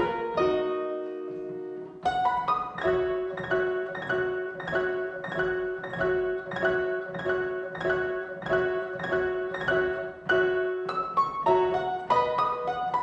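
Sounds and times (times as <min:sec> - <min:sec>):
fortepiano playing a waltz: 0:00.0 - 0:13.0.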